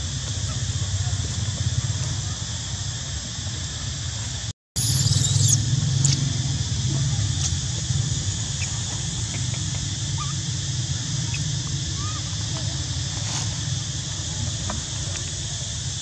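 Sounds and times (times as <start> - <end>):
high insect drone: 0.0 - 16.0
high-pitched squeal: 4.8 - 5.7.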